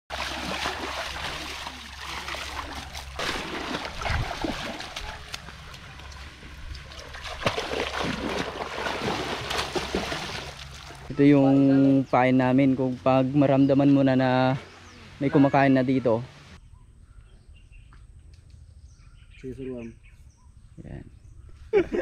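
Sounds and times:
river water splashing: 0:00.1 - 0:11.2.

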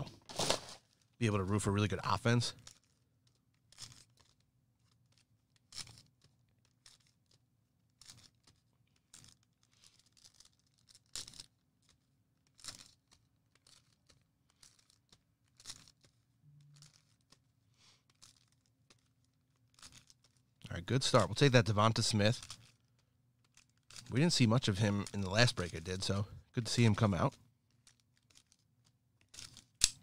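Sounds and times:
plastic and foil packaging crinkling: 0:00.0 - 0:01.0.

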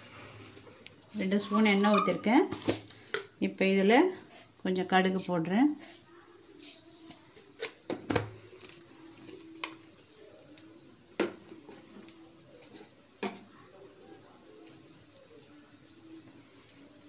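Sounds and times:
mustard seeds popping in oil: 0:06.6 - 0:13.5.

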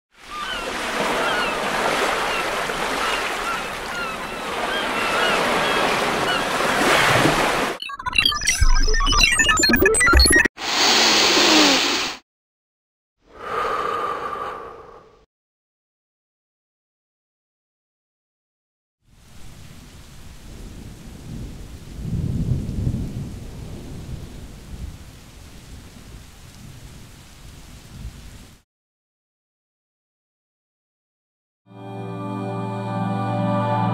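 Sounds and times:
ocean surf: 0:00.2 - 0:07.8, 0:10.6 - 0:12.2
steady rain: 0:19.1 - 0:28.6
low rumble of thunder: 0:20.3 - 0:28.2.

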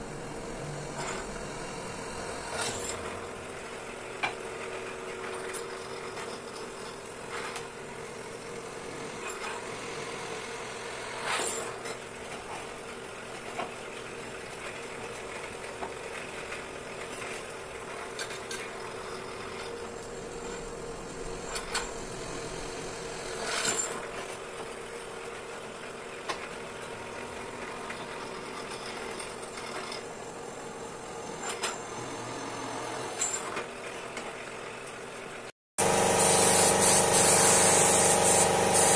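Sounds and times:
drill press motor running: 0:00.0 - 0:03.8, 0:27.3 - 0:33.4, 0:35.8 - 0:38.9.

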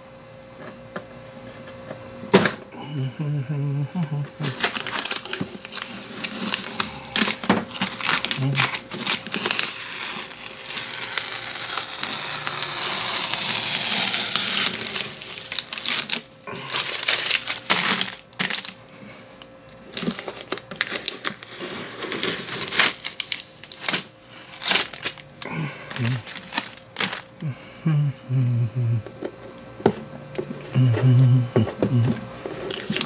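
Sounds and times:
faint steady hum: 0:00.0 - 0:33.0
tape crinkling: 0:04.3 - 0:27.5, 0:31.8 - 0:33.0
tape ripping off: 0:04.4 - 0:18.8, 0:19.9 - 0:25.2, 0:25.9 - 0:27.3.

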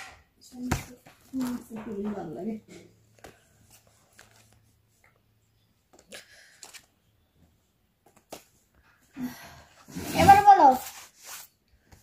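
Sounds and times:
paper cards rustling: 0:03.1 - 0:05.0, 0:05.9 - 0:07.0.

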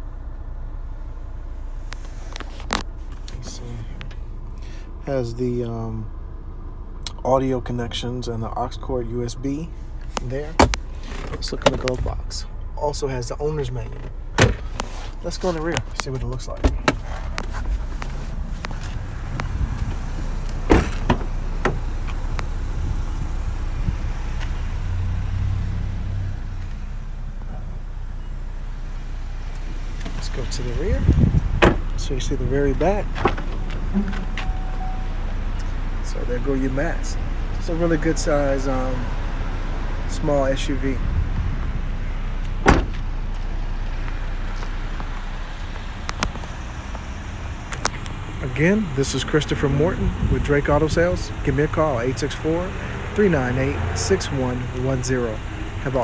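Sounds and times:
low steady rumble: 0:00.0 - 0:56.0
car door latch clicking: 0:20.6 - 0:21.8, 0:31.6 - 0:31.8, 0:42.6 - 0:43.0
heavy thump: 0:20.6 - 0:21.9, 0:31.3 - 0:31.9, 0:42.6 - 0:43.0
door swinging open knocks: 0:31.6 - 0:31.8, 0:42.6 - 0:43.0.

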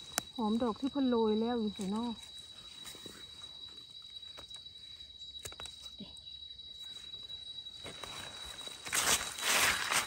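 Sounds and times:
insect trill: 0:00.0 - 0:10.0
clicks and rustles in leaf litter: 0:07.8 - 0:10.0.

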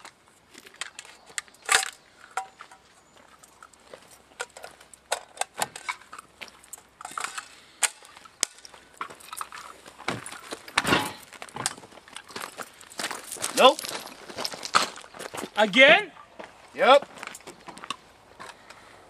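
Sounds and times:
footsteps on gravel: 0:00.0 - 0:05.1, 0:05.9 - 0:07.2, 0:08.0 - 0:18.9
shotgun action clicks and rattles: 0:00.7 - 0:02.6, 0:04.4 - 0:10.8.

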